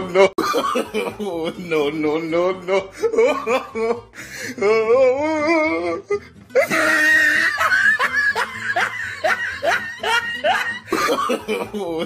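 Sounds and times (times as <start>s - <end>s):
music backing: 0.1s - 12.0s
warbling laughter: 6.6s - 12.0s.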